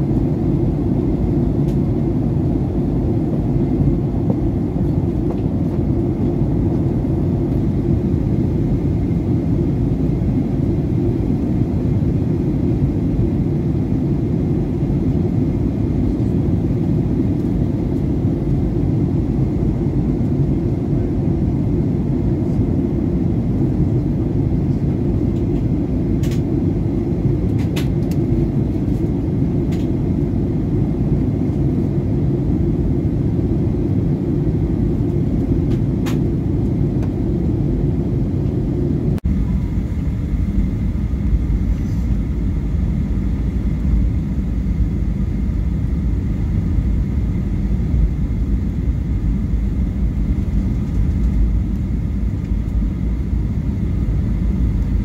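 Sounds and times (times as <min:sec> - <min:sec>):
airplane cabin rumble: 0:00.0 - 0:55.0.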